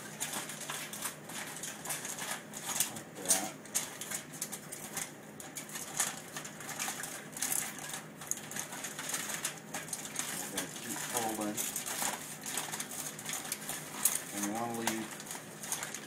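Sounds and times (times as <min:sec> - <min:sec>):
aluminium foil crinkling: 0:00.0 - 0:16.0.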